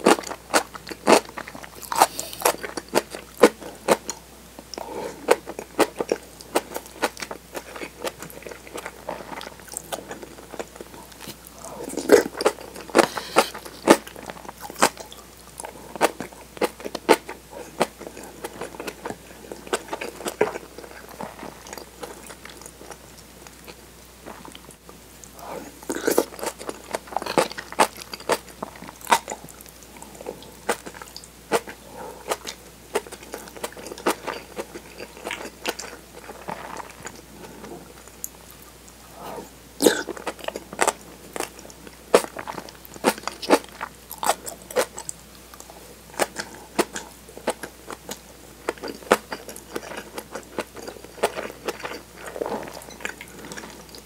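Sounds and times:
chewing food: 0.0 - 39.2, 39.8 - 54.0.

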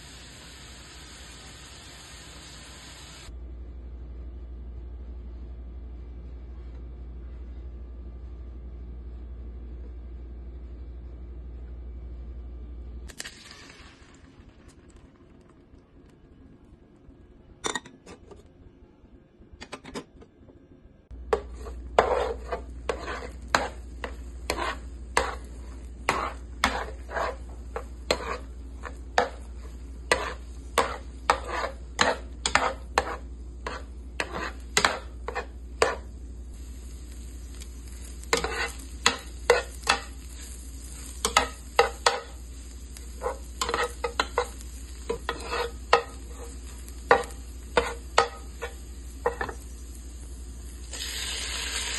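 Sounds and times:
food sizzling: 0.0 - 3.3, 13.1 - 15.6, 21.1 - 51.9
spatula scraping frying pan: 21.3 - 36.1, 37.8 - 49.6
spatula tapping pan: 21.3 - 36.1, 38.3 - 40.4, 41.2 - 42.4, 43.2 - 46.4, 47.0 - 49.6.

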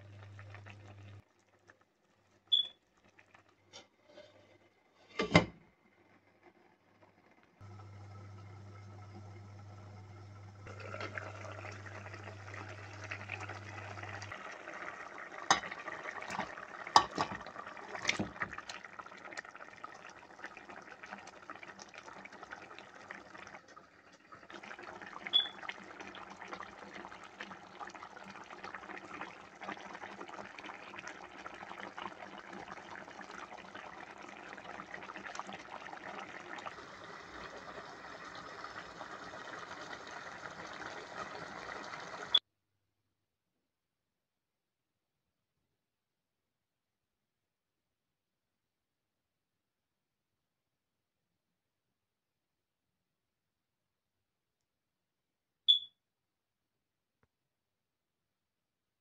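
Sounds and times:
curry bubbling in a pan: 0.0 - 4.1, 6.1 - 42.4.

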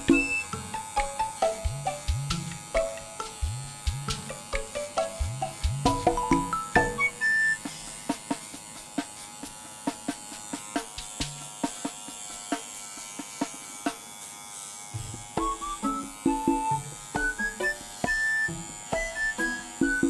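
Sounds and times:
background music: 0.0 - 10.2, 15.2 - 20.0
electric pet trimmer buzzing: 0.0 - 20.0.

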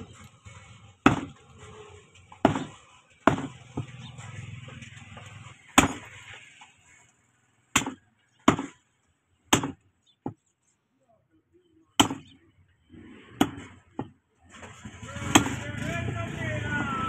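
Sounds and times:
cleaver chopping on wooden block: 1.0 - 1.4, 2.4 - 3.9, 5.8 - 6.1, 7.8 - 8.8, 9.5 - 10.4, 12.0 - 12.4, 13.4 - 14.2.

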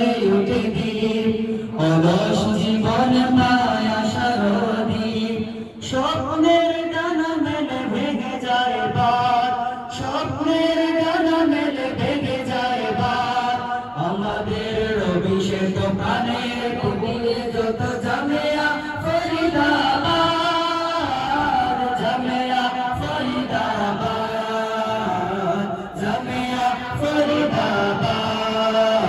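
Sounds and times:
boys singing into microphones: 0.0 - 29.0.

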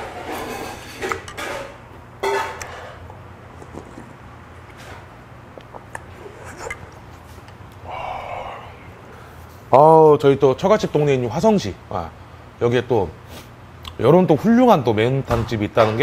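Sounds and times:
person slurping broth: 3.5 - 9.2.

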